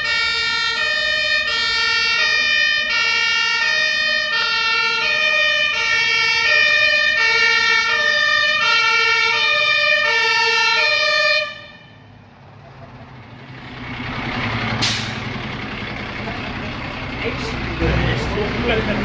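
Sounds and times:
two-tone fire engine siren: 0.0s - 12.2s.

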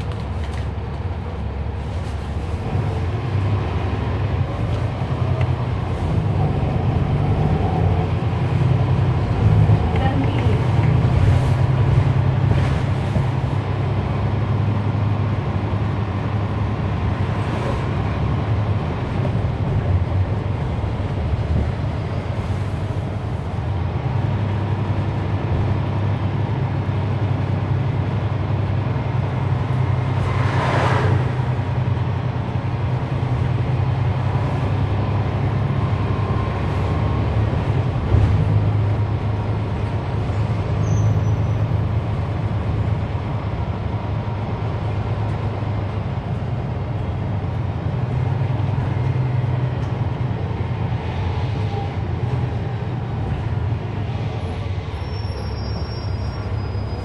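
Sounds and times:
bus diesel engine drone: 0.0s - 57.0s.

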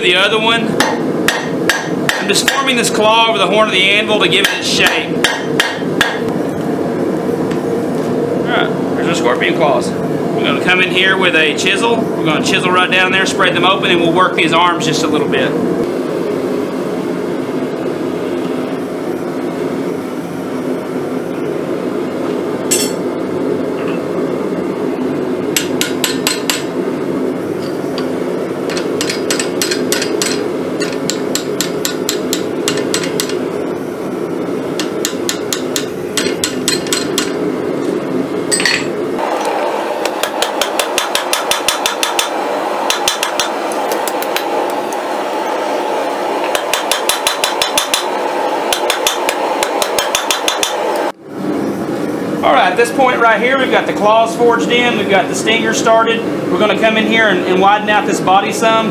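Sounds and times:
hammer striking hot steel: 0.8s - 2.7s, 4.4s - 6.3s, 22.7s - 23.0s, 25.5s - 26.7s, 28.7s - 33.4s, 34.8s - 37.4s, 38.5s - 44.8s, 46.4s - 51.1s.

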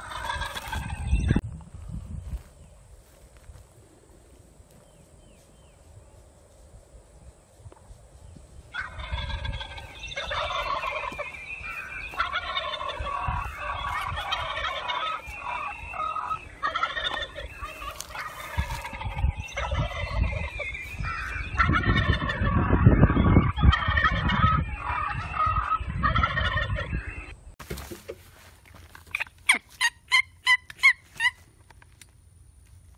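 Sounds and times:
wild turkeys gobbling: 0.0s - 1.3s, 8.7s - 27.4s, 29.0s - 31.4s
low rumble on the microphone: 0.9s - 8.7s.

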